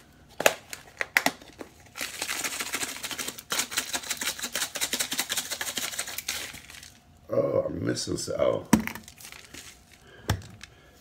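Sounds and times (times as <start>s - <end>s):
spice shaker rattling: 2.0s - 7.0s.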